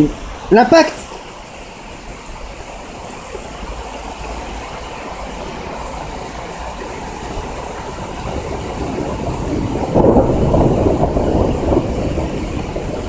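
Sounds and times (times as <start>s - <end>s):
heavy rain hissing: 0.0s - 13.0s
thunder rolling: 5.3s - 13.0s.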